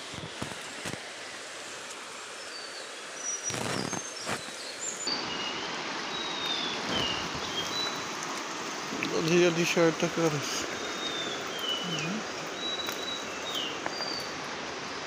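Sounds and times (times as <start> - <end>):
rustle: 0.0 - 15.0
fast-flowing river rushing: 4.1 - 15.0.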